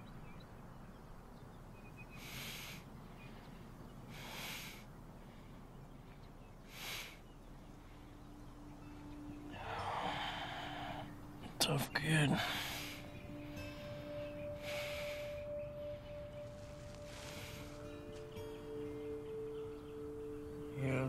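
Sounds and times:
man breathing raggedly: 4.1 - 5.7, 9.5 - 11.4, 12.4 - 18.0
faint steady low tone: 7.2 - 21.0.

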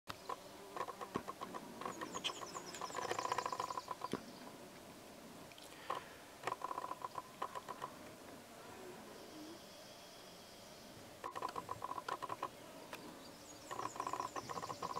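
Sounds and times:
sharp clicks: 0.1 - 4.2, 5.5 - 7.9, 11.2 - 12.5, 13.7 - 14.9
animal chattering calls: 0.8 - 4.1, 13.7 - 14.9.

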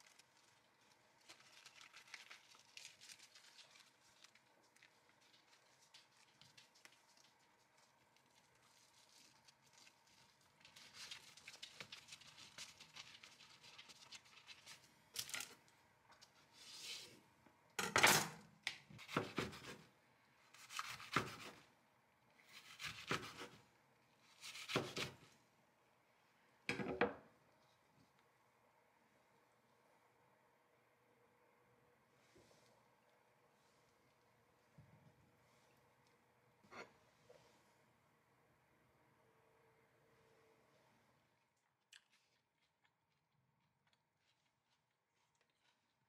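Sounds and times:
tortilla rustling and rubbing: 0.0 - 14.9.

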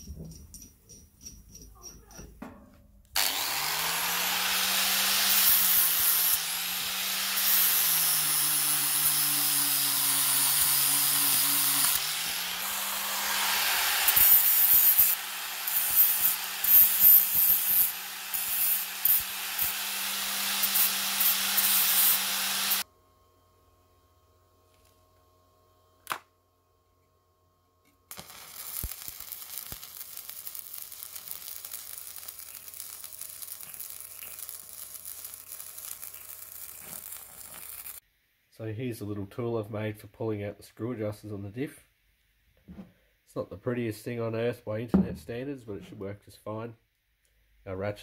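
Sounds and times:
harsh hissing rasp: 3.2 - 22.8
power tool motor running: 3.2 - 22.8.

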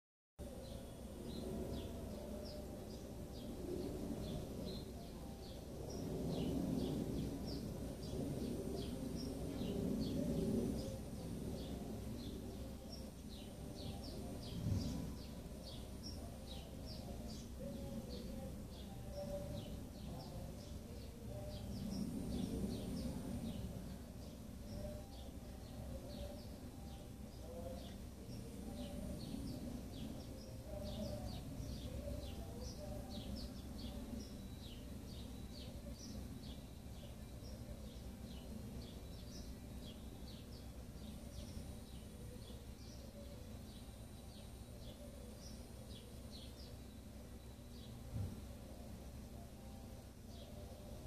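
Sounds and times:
low background rumble: 0.4 - 51.0
small birds chirping: 0.4 - 51.0.

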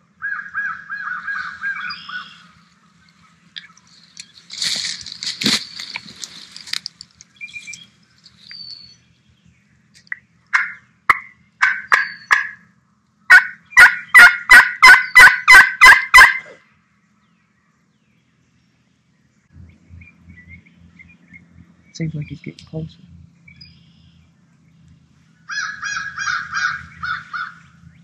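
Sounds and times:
turkey call yelps: 0.2 - 2.6, 10.5 - 12.7, 13.3 - 16.6, 25.4 - 27.8.

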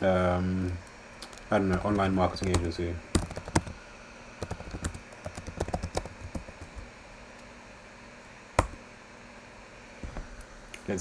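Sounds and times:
computer keyboard typing: 1.2 - 3.8, 4.4 - 6.8.

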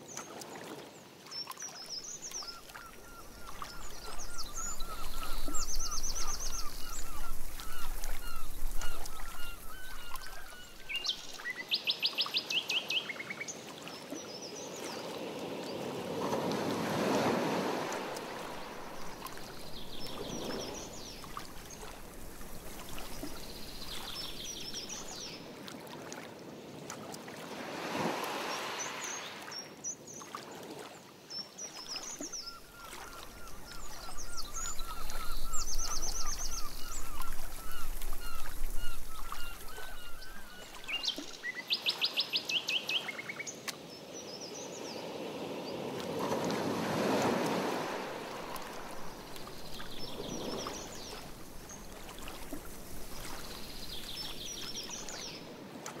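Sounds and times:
paddle swishing water: 0.0 - 11.6, 14.8 - 31.0, 31.7 - 41.6, 45.4 - 56.0
songbirds singing: 1.3 - 14.9, 17.8 - 25.5, 31.3 - 45.1, 47.6 - 55.5.

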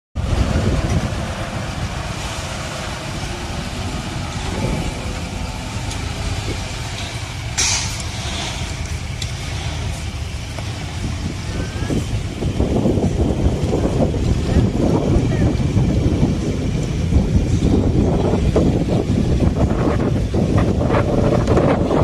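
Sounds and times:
diesel engine rumble: 0.2 - 22.0
short sharp hiss: 7.6 - 8.1.

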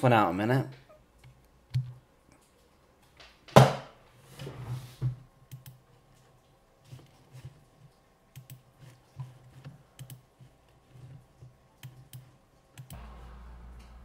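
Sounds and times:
steady low hum: 8.1 - 14.0.

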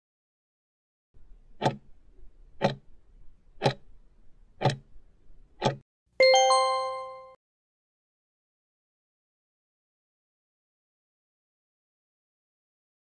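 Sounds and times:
timer clock ticks: 1.6 - 1.9, 2.6 - 2.9, 3.6 - 3.9, 4.6 - 4.9, 5.6 - 5.8
bright chime: 6.2 - 7.4.

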